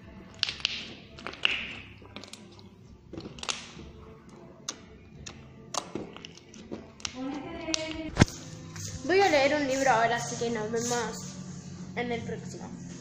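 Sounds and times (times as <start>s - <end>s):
slime squishing and popping: 0.2s - 3.9s.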